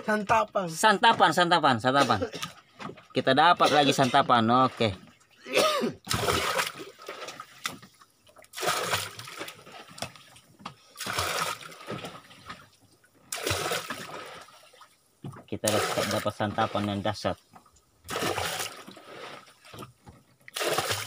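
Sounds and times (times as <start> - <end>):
water splashing and sloshing: 0.0 - 21.0.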